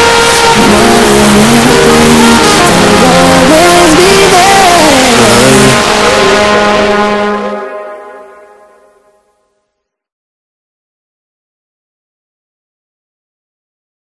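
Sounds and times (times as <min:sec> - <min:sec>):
hip-hop instrumental with heavy bass: 0:00.0 - 0:08.2.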